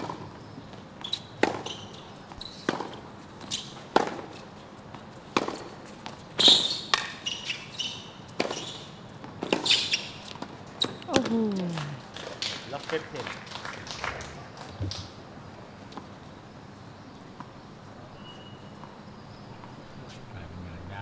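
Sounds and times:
shoe squeaks on court: 1.0s - 3.8s, 6.4s - 11.0s, 18.1s - 19.0s
tennis ball bouncing: 1.0s - 6.2s, 6.8s - 7.2s, 8.4s - 12.0s
racket striking ball: 1.4s - 1.7s, 2.7s - 3.0s, 3.9s - 4.3s, 5.3s - 5.7s, 6.8s - 7.2s.

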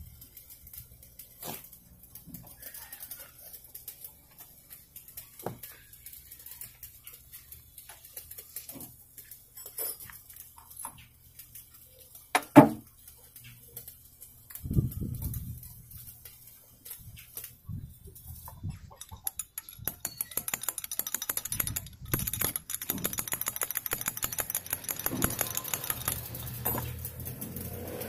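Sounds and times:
light metal clinks and taps: 0.0s - 27.7s.

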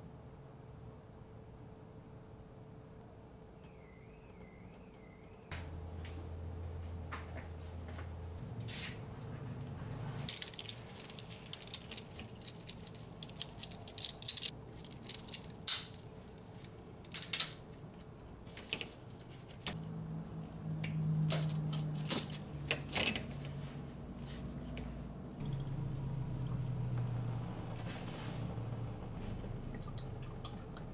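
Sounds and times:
low steady hum: 0.0s - 30.9s
hand tools clicking against metal: 10.3s - 16.0s.

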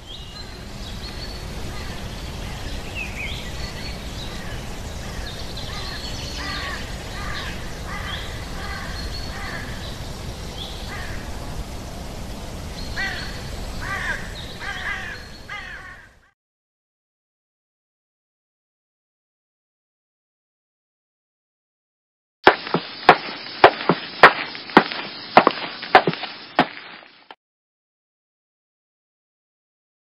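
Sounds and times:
birds calling: 0.0s - 11.4s, 12.7s - 16.3s, 22.5s - 27.4s.

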